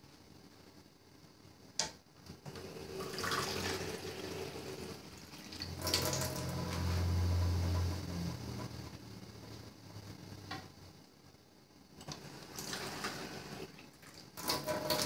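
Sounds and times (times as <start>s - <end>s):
low steady hum: 0.0s - 15.0s
water running from tap: 2.8s - 7.2s, 12.2s - 15.0s.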